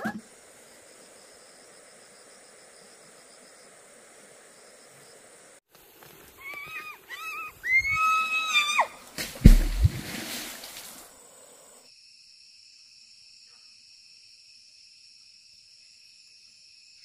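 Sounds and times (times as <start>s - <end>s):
high-pitched animal calls: 6.4s - 8.9s.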